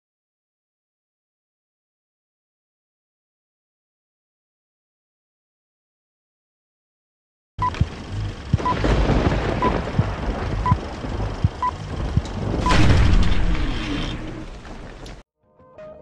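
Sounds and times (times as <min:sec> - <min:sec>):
low rumble: 0:07.6 - 0:15.2.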